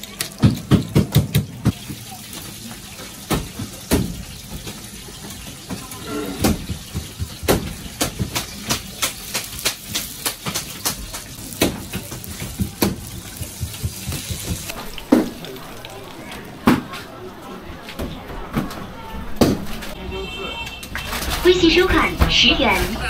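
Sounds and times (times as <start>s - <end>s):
utensils and cookware clattering: 0.0s - 17.1s.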